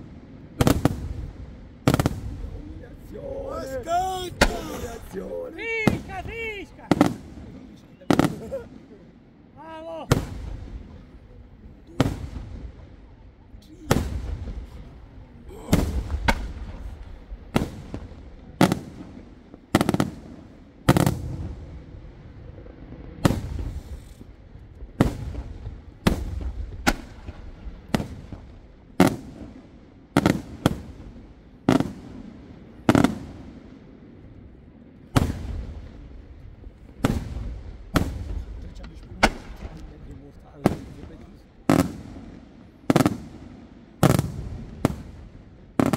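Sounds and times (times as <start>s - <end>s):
firework shells bursting: 37.0s - 40.1s.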